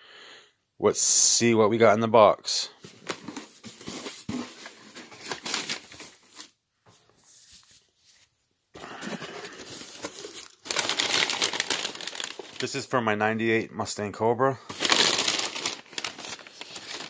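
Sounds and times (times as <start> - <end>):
packing paper crinkling: 2.8 - 6.6, 8.8 - 12.9, 14.7 - 17.0.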